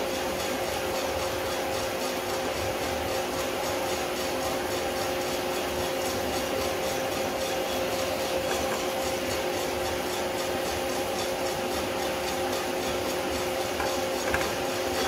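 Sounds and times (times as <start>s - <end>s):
roaster motor and fan hum: 0.0s - 15.0s
coffee beans tumbling in drum: 7.0s - 15.0s.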